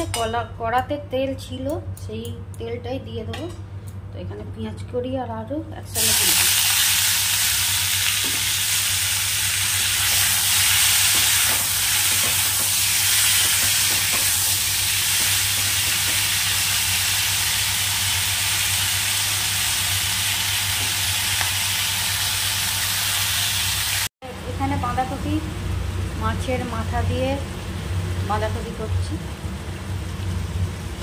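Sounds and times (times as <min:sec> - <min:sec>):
vegetables sizzling in hot oil: 0:06.0 - 0:25.1.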